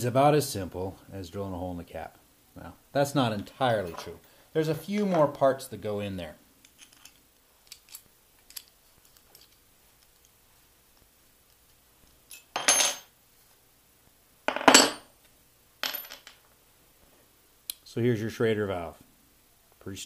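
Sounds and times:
metal fittings clinking on wood: 6.6s - 10.4s.

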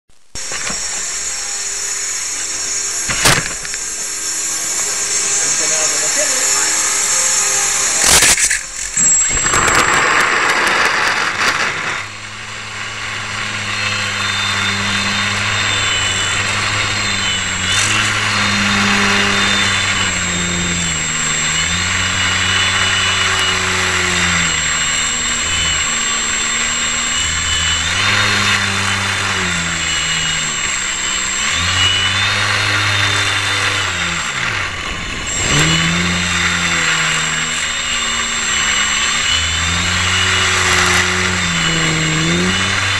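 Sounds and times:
model aircraft motor whining: 0.1s - 42.9s
rushing noise: 0.4s - 20.4s, 30.8s - 42.9s.

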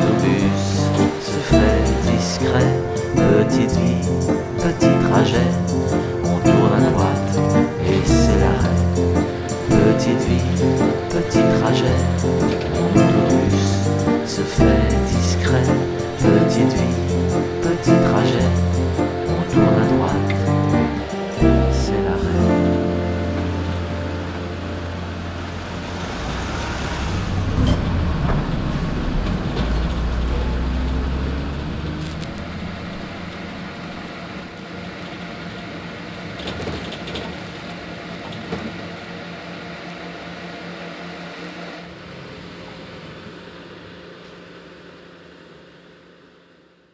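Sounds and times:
bus engine rumble: 0.0s - 46.5s
road noise: 0.0s - 46.6s
rattles and clicks: 36.3s - 39.0s.

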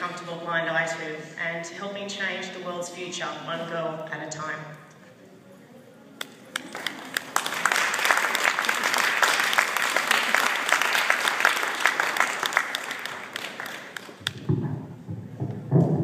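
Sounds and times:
audience applauding: 6.5s - 14.4s.

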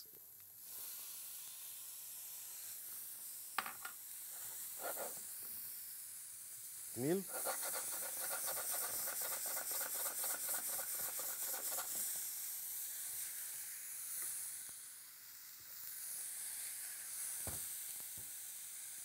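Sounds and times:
vegetables sizzling in oil: 0.2s - 19.0s
spatula stirring in a pan: 7.3s - 12.0s.

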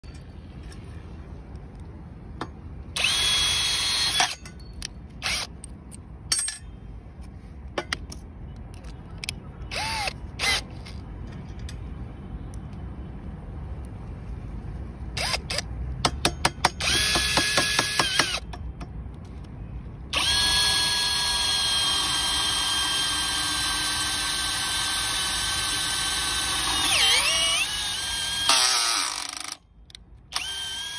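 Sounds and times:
cordless drill motor whine: 3.0s - 4.4s, 9.7s - 10.6s, 20.2s - 29.6s, 30.3s - 30.9s
drill trigger bursts: 3.0s - 4.4s, 9.7s - 10.7s, 20.2s - 29.6s, 30.3s - 30.9s.

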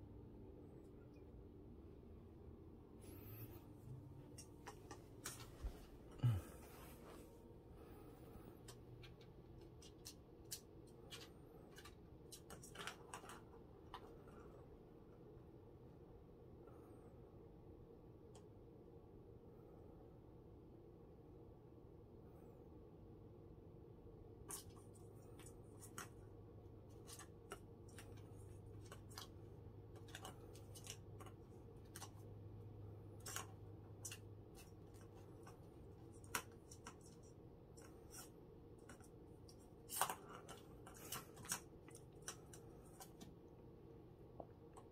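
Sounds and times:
plastic cat toy balls rattling: 33.0s - 43.3s.

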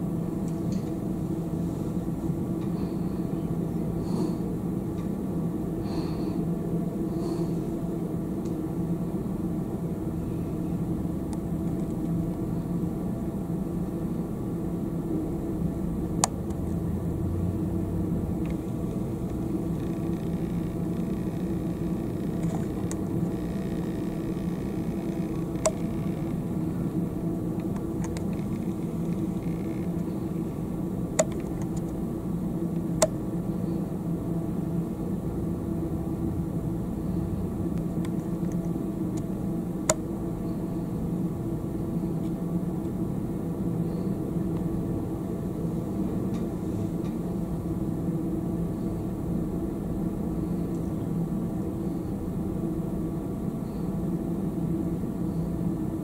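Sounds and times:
low rumbling hum: 0.0s - 56.0s
sharp clicks: 18.4s - 26.4s, 27.6s - 30.1s, 31.2s - 32.0s.

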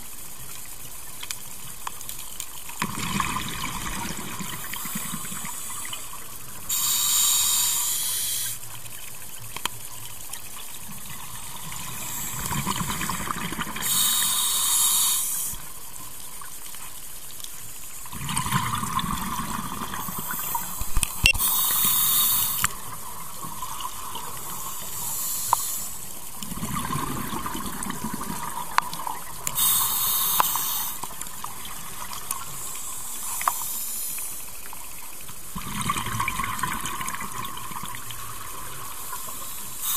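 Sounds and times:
exhaled air bubbling: 2.8s - 8.9s, 10.2s - 15.9s, 17.8s - 33.6s, 35.3s - 39.9s
regulator inhalation hiss: 4.6s - 8.8s, 11.7s - 13.1s, 13.8s - 15.9s, 19.9s - 23.5s, 24.3s - 26.4s, 29.4s - 31.8s, 32.4s - 34.6s, 38.8s - 39.9s.

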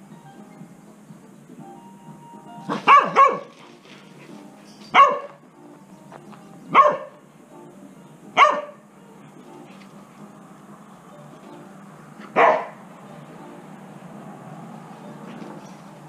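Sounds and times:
dog barking: 2.7s - 3.6s, 4.9s - 5.4s, 6.7s - 7.2s, 8.4s - 8.8s, 12.2s - 12.8s.

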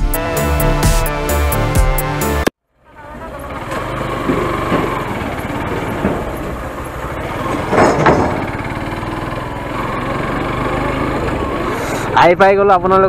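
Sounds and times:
small motorbike engine running: 2.8s - 12.2s.

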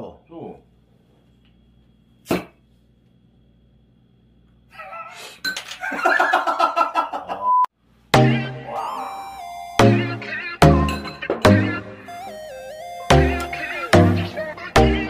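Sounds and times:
pitched sounds: 8.1s - 15.0s.

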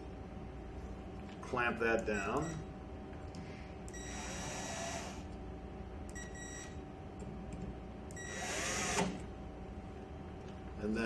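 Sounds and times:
screw gun whining: 4.0s - 5.2s, 8.2s - 9.2s.

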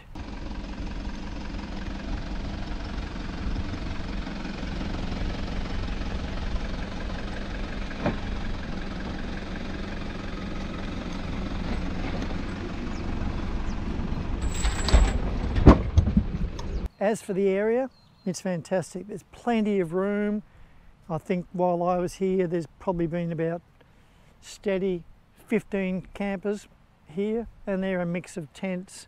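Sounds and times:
engine running at low revs: 0.0s - 16.9s.

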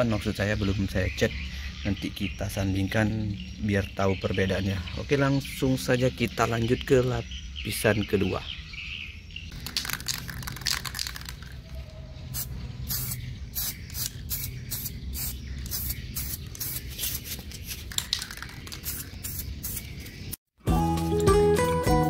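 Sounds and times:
spray paint can hissing: 9.5s - 11.6s, 12.3s - 20.4s.

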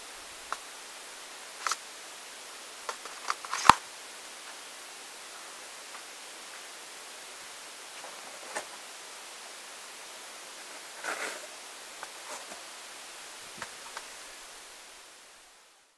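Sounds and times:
steady background hiss: 0.0s - 15.9s.

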